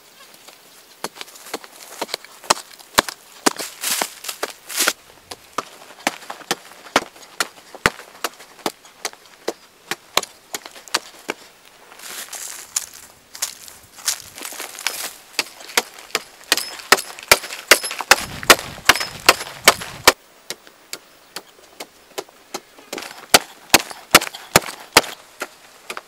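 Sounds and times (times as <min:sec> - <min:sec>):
digging tool striking hard earth: 0:01.0 - 0:11.4, 0:14.5 - 0:20.2, 0:22.9 - 0:26.0.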